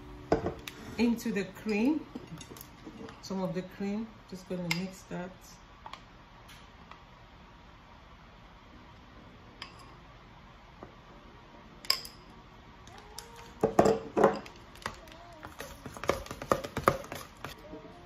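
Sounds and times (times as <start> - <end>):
spoon scraping mixing bowl: 14.8 - 17.6.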